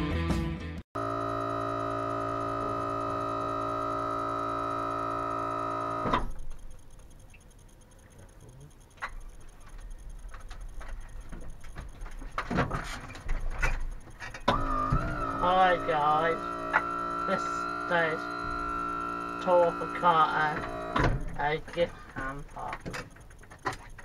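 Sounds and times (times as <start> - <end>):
power wheelchair driving up ramp: 1.0 - 24.0
scattered clicks and knocks: 4.4 - 24.0
sustained music chord: 14.8 - 21.8.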